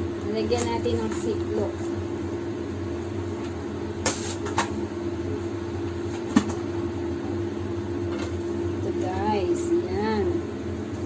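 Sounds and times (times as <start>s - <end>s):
kitchen appliance hum: 0.0s - 11.0s.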